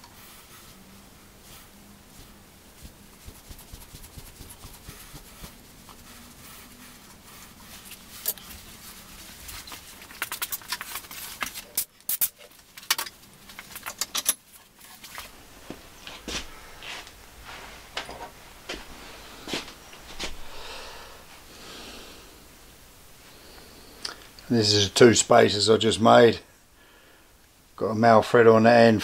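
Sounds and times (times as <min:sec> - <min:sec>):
wrapping rustling: 0:02.1 - 0:15.4.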